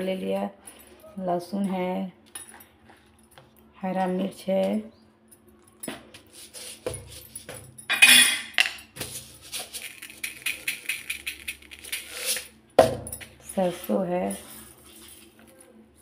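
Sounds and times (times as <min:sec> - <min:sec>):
kitchen containers and utensils clattering: 0:05.9 - 0:15.0.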